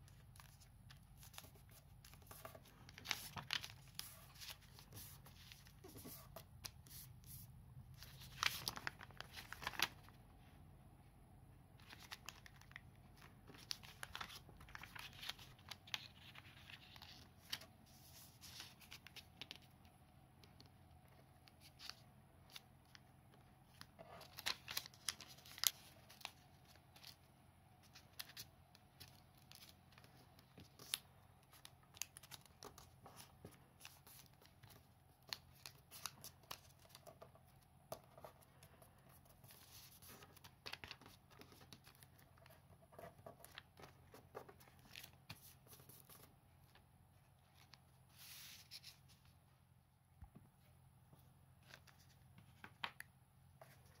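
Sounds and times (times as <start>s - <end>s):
paper crinkling and rustling: 0.1s - 7.4s, 8.0s - 10.2s, 11.8s - 19.8s, 23.7s - 46.8s
paper crackles: 8.0s - 10.1s.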